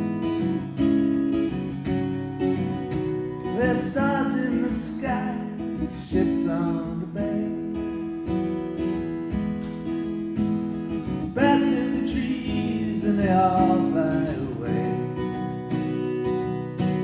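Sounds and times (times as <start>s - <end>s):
acoustic guitar strumming: 0.0s - 17.0s
man singing: 3.4s - 8.0s, 11.2s - 15.4s.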